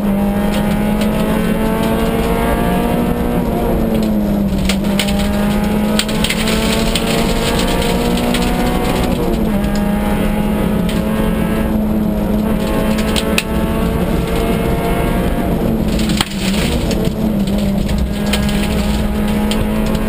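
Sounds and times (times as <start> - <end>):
rally car engine revving hard: 0.0 - 20.0
sharp ticks and rattles: 4.0 - 9.9, 12.4 - 14.4, 15.9 - 20.0.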